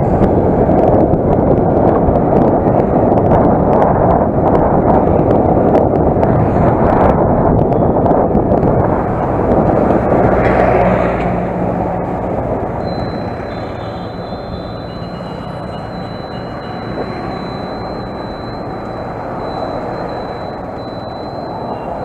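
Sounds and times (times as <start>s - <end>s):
wind rushing: 0.0s - 22.0s
thin high tone: 12.8s - 22.0s.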